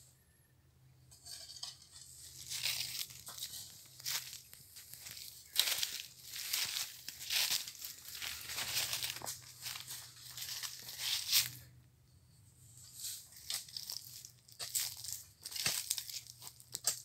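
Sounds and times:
hoes chopping through compost: 0:14.5 - 0:17.0.

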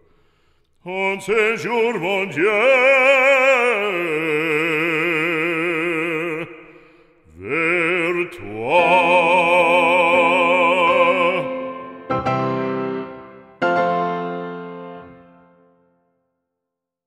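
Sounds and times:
person singing operatic hymn: 0:00.8 - 0:13.3.

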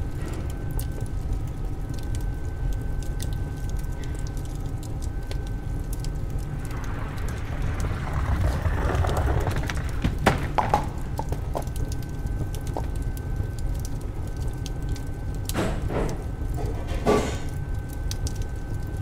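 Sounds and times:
boiling water: 0:00.0 - 0:19.0
oven fire crackling: 0:00.0 - 0:19.0
knocks and clatters: 0:07.4 - 0:11.9.

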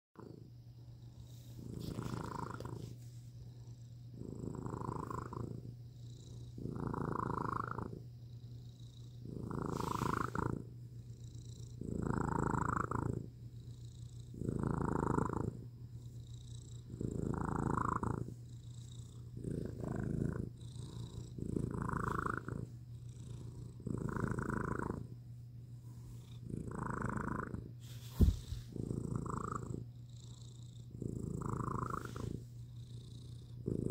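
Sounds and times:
cat purring: 0:00.2 - 0:33.9
sharp thump: 0:28.1 - 0:28.6.

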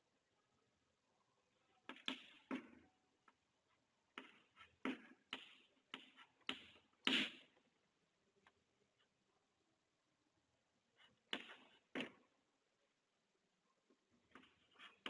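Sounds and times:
chalk tapping and scratching on chalkboard: 0:04.2 - 0:07.6, 0:11.0 - 0:12.2, 0:14.3 - 0:15.0.

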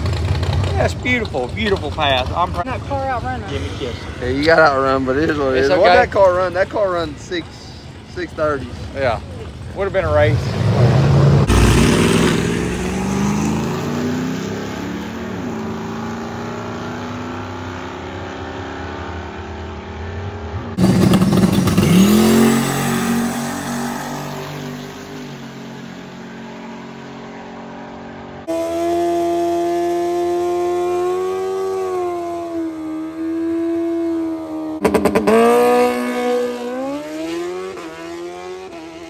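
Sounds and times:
drag racing engine revving: 0:10.0 - 0:25.4, 0:27.8 - 0:39.0.

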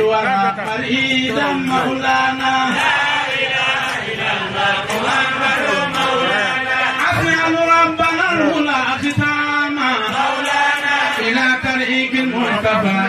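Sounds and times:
man chanting into a microphone: 0:00.0 - 0:02.8, 0:05.7 - 0:10.2, 0:11.1 - 0:13.0.

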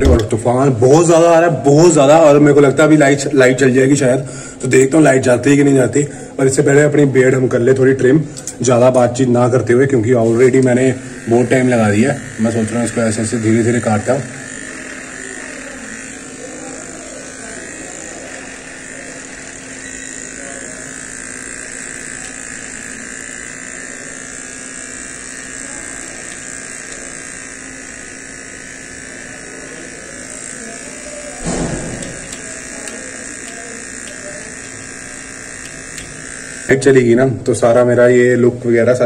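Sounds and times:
beard trimmer buzzing: 0:00.0 - 0:39.0
loud thump: 0:31.4 - 0:32.2.

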